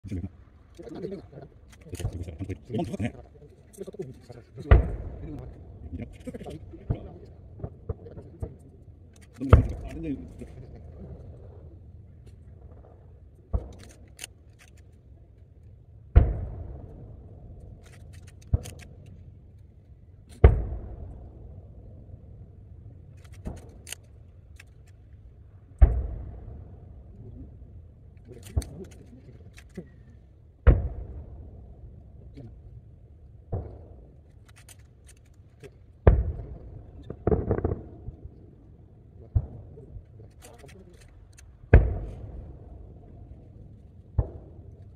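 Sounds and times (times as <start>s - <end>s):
distant firework booms: 4.6s - 8.6s, 16.1s - 17.6s, 20.4s - 22.2s, 25.7s - 27.6s, 30.6s - 32.5s, 36.0s - 38.6s, 41.7s - 43.3s
rolling echo: 4.6s - 14.2s, 16.0s - 19.5s, 20.2s - 44.9s.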